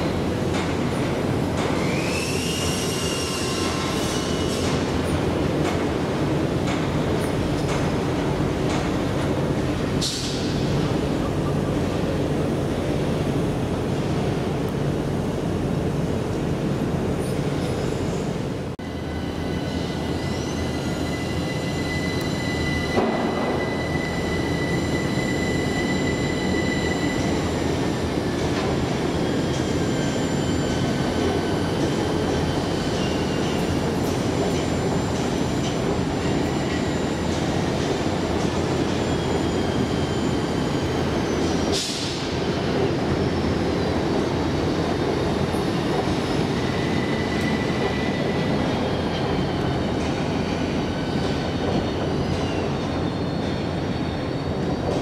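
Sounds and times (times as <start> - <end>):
wheel squeal: 1.8 - 4.8, 19.4 - 27.6, 46.5 - 49.6.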